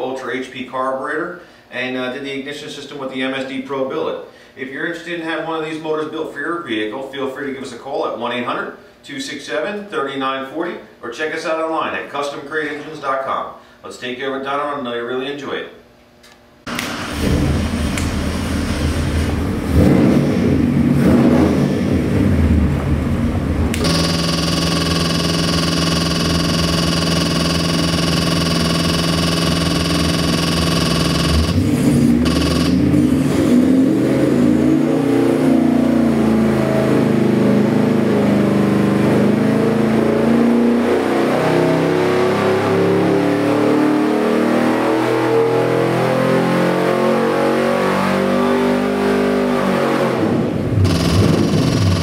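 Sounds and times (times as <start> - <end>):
engine idling then revving: 16.7 - 34.4, 50.6 - 52.0.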